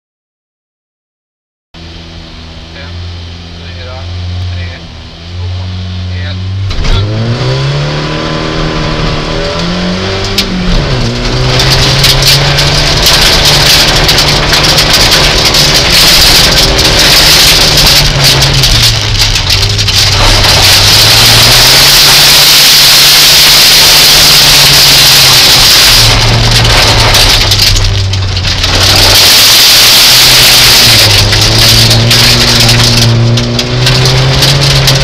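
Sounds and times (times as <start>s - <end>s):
rally car engine revving: 1.8s - 35.0s
loud rushing noise: 7.9s - 35.0s.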